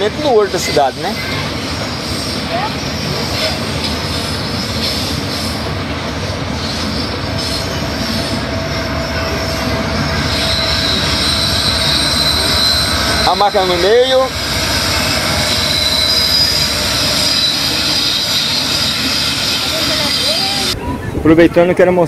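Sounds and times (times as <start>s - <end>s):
train wheels rumbling on rails: 0.0s - 21.2s
wheel squeal: 6.6s - 20.8s
high-pitched wheel squeal: 6.6s - 21.1s.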